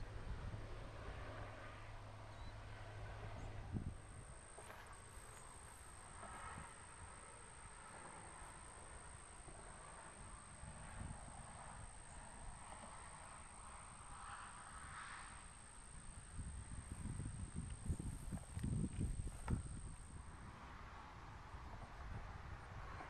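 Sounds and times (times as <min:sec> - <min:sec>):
faint high-pitched whine: 0:00.0 - 0:23.0
faint distant sounds: 0:00.1 - 0:21.8
background hiss: 0:03.7 - 0:20.7.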